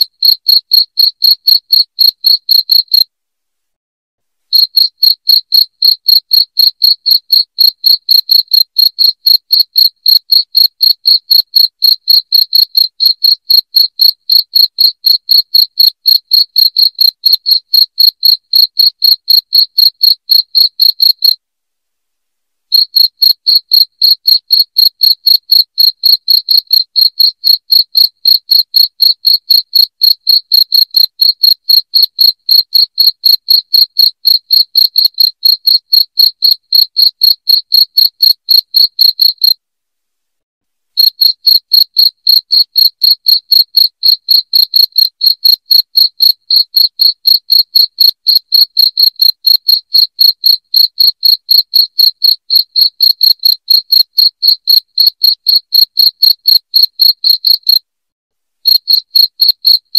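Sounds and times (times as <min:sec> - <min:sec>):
cricket chirping: 0:00.0 - 0:03.0, 0:04.5 - 0:21.4, 0:22.7 - 0:39.6, 0:41.0 - 0:57.8, 0:58.6 - 0:59.9.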